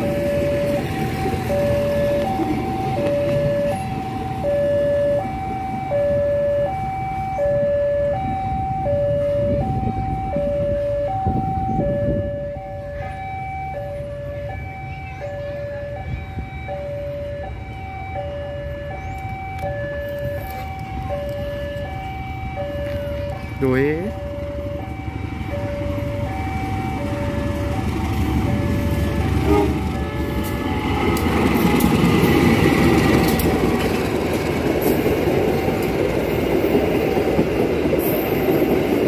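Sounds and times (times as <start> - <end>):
level crossing two-tone alarm: 0.0 - 31.0
train rumbling past: 0.0 - 39.0.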